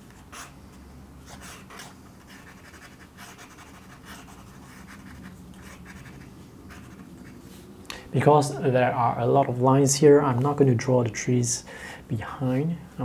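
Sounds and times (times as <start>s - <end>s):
pen nib scratching paper: 0.1s - 7.6s.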